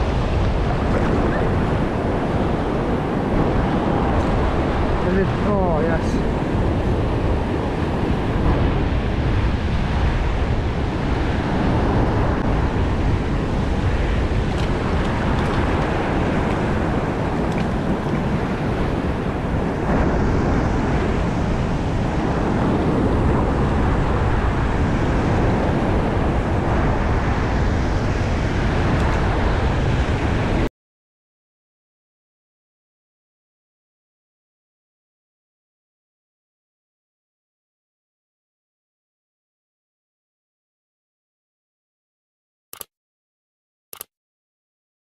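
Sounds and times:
ocean surf breaking on rocks: 0:00.0 - 0:30.7
wind buffeting microphone: 0:00.0 - 0:30.7.

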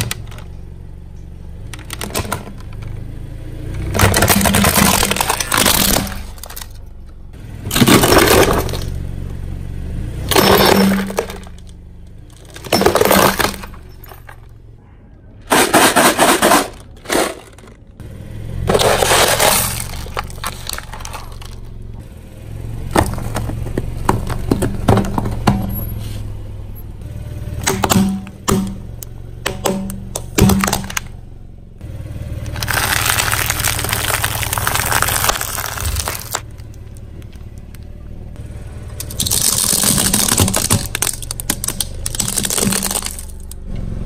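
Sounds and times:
low steady car hum: 0:00.0 - 0:44.0
tyre crushing objects crunching: 0:03.8 - 0:06.8, 0:07.7 - 0:09.0, 0:10.3 - 0:11.7, 0:12.4 - 0:14.5, 0:18.6 - 0:21.8, 0:22.8 - 0:25.8, 0:32.4 - 0:37.6, 0:39.0 - 0:43.6.

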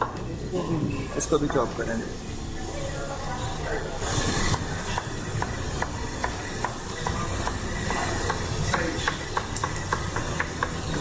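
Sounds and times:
knife chopping on cutting board: 0:04.5 - 0:11.0.

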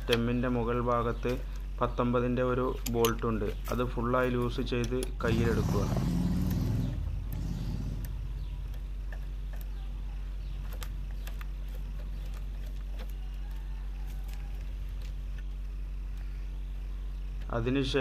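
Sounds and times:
faint metallic clicks: 0:02.7 - 0:05.2.

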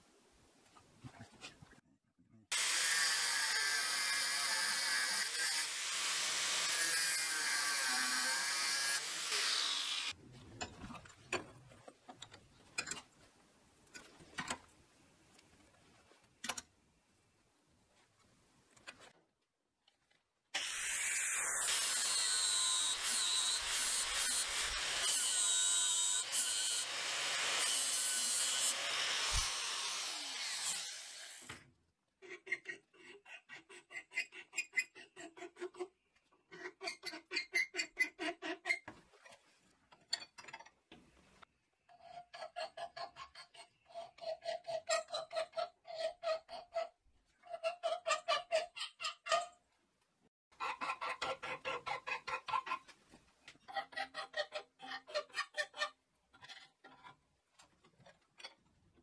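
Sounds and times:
angle grinder grinding steel: 0:02.6 - 0:10.1, 0:20.6 - 0:31.5.

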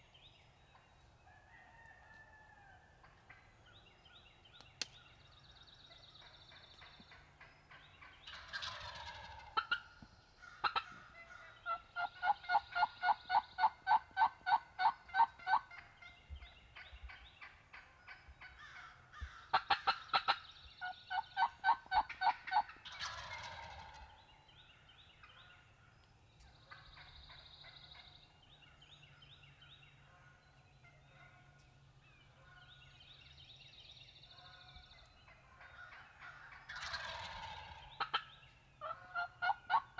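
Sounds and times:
turkeys gobbling: 0:06.1 - 0:24.2, 0:26.6 - 0:28.2, 0:35.2 - 0:39.9.

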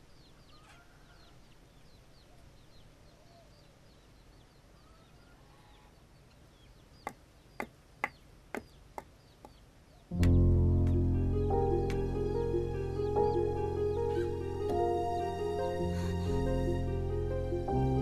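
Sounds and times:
faint birds chirping: 0:00.0 - 0:18.0
sharp clicks: 0:10.1 - 0:11.0.

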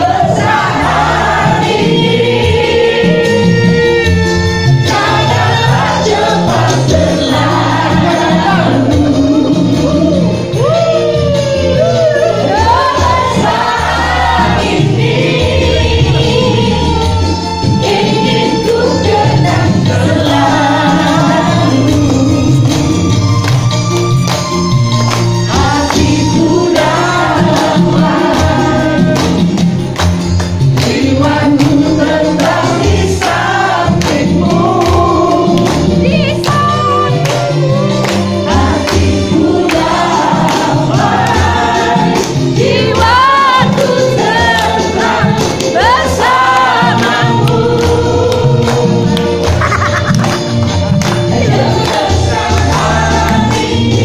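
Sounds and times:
crowd singing along: 0:00.0 - 0:23.3, 0:25.4 - 0:54.0
upbeat song with singing: 0:00.0 - 0:54.0
crowd clapping in time: 0:23.4 - 0:26.2, 0:28.4 - 0:31.8, 0:32.4 - 0:41.5, 0:46.5 - 0:53.7.

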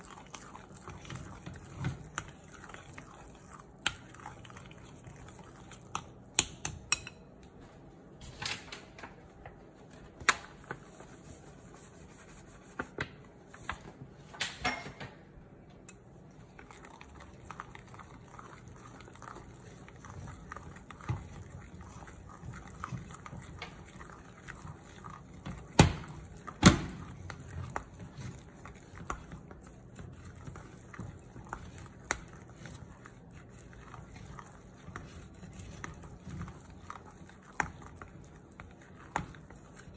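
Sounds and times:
spatula stirring batter: 0:00.0 - 0:07.7, 0:09.8 - 0:13.7, 0:15.9 - 0:39.9
spatula tapping glass bowl: 0:05.9 - 0:07.3.

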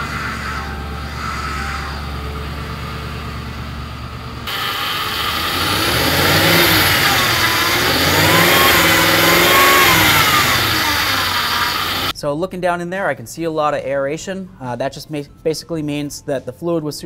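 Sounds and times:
car engine running: 0:00.0 - 0:12.1
power steering pump whining: 0:02.0 - 0:12.1.

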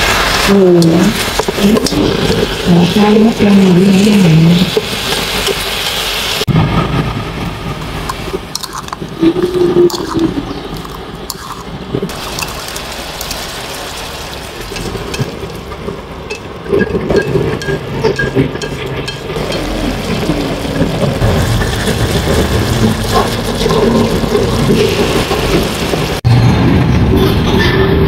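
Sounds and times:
sizzling in a wok: 0:00.0 - 0:26.3
liquid simmering: 0:07.8 - 0:26.2
utensils clicking: 0:08.1 - 0:11.7.

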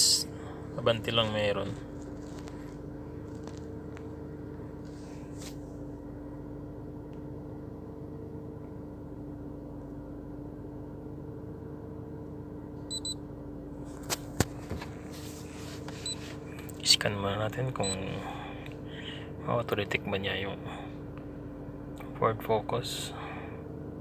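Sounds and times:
steady hum with held tones: 0:00.0 - 0:24.0
double electronic beep: 0:12.9 - 0:13.2.

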